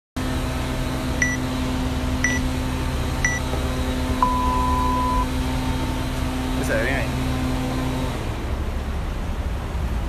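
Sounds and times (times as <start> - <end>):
steady background hum: 0.3 - 10.0
long low beep: 1.2 - 1.4, 2.2 - 2.5, 3.2 - 3.5, 4.2 - 5.4
short high beeps: 2.2 - 2.4, 4.2 - 5.3.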